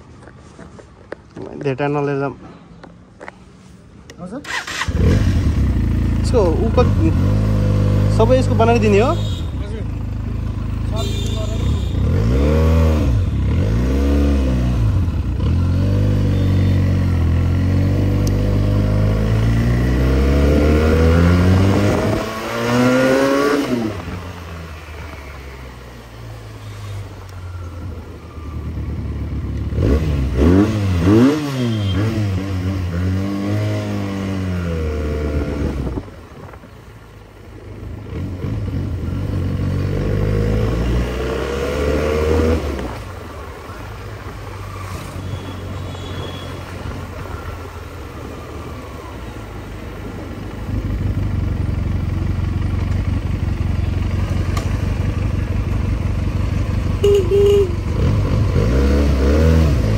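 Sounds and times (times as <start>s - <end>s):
motorcycle engine revving: 4.4s - 26.4s, 28.2s - 36.1s, 37.9s - 43.4s, 50.6s - 59.9s.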